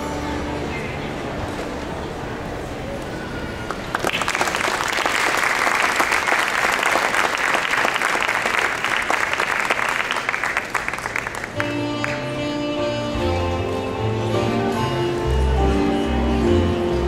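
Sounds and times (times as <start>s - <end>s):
audience applauding: 3.6s - 12.4s.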